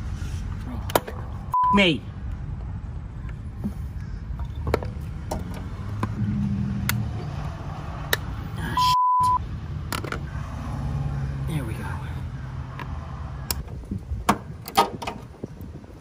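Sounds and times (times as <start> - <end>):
steady low rumble: 0.0 - 10.5
censor bleep: 1.5 - 1.8, 8.7 - 9.4.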